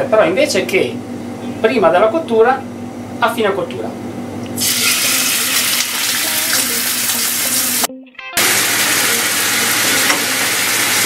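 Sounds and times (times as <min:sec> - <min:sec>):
meat sizzling in frying pan: 0:04.6 - 0:11.0.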